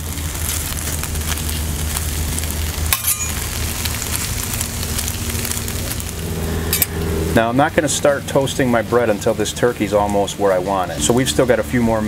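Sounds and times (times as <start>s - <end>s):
lawn mower engine drone: 0.0s - 12.0s
meat sizzling on griddle: 0.0s - 12.0s
metal spatula scraping: 2.9s - 3.5s, 6.7s - 7.0s.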